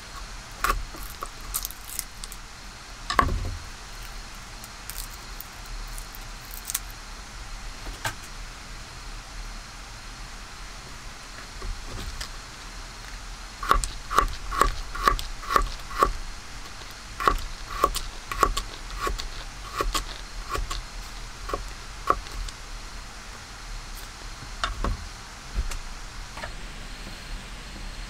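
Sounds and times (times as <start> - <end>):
knife chopping on wooden board: 13.6 - 22.5.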